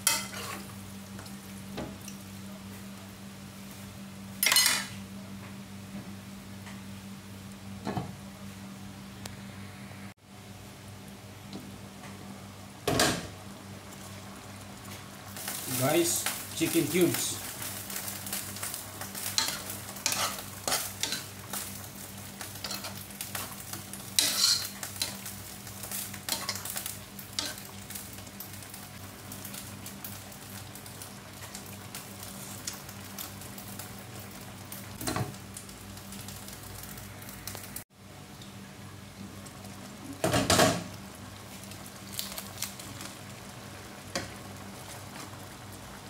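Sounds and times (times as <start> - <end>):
simmering bubbling hiss: 9.0 - 11.4
spoon clinking and scraping pan: 19.4 - 21.2, 24.2 - 25.1.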